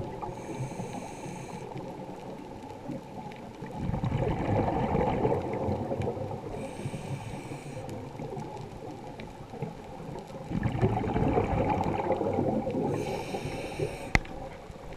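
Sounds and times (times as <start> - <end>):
underwater bubbles gurgling: 0.0 - 14.9
regulator inhale hiss: 0.2 - 2.1, 6.4 - 8.3, 12.8 - 14.5.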